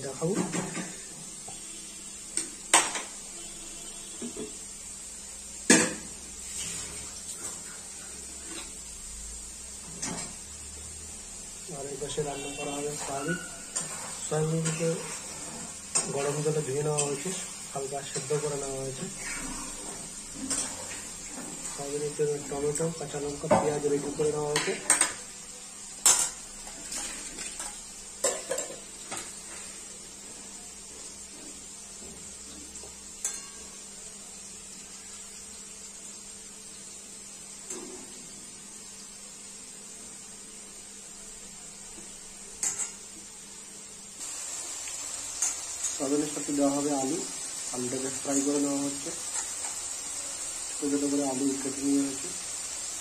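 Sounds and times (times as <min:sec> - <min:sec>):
utensils and dishes clattering: 0:00.2 - 0:01.1, 0:09.9 - 0:10.4, 0:12.9 - 0:17.3, 0:19.2 - 0:25.2, 0:26.0 - 0:29.3, 0:33.2 - 0:33.8.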